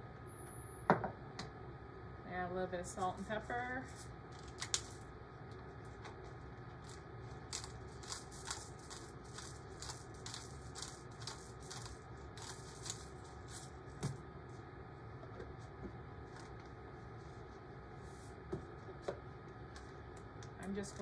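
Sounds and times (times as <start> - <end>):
salt and pepper grinders grinding: 6.8 - 13.8.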